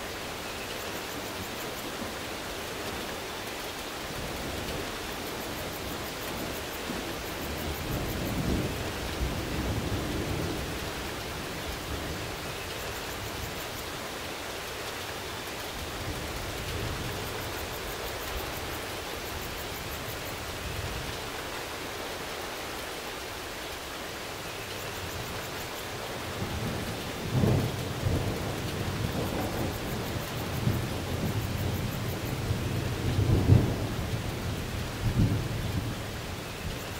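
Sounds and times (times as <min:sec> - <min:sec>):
steady rain: 0:00.0 - 0:36.9
thunder rumbling: 0:26.1 - 0:36.9.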